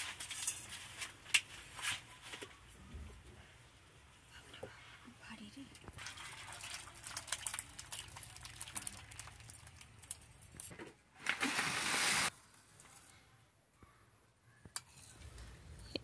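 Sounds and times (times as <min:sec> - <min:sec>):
liquid splashing: 0:05.9 - 0:10.0
curry pouring into bowl: 0:06.0 - 0:10.1
loud even hiss: 0:11.4 - 0:12.3.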